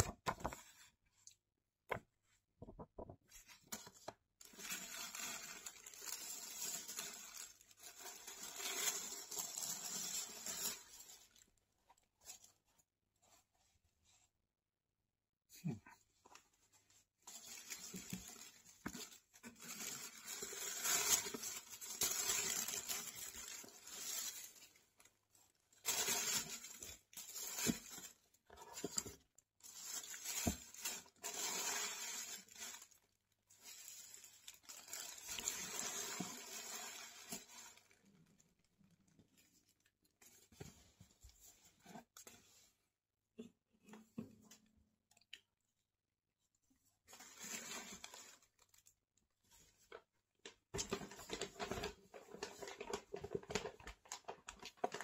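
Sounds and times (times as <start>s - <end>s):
packaging crinkling and rustling: 3.4s - 11.6s, 17.3s - 38.4s, 49.8s - 55.0s.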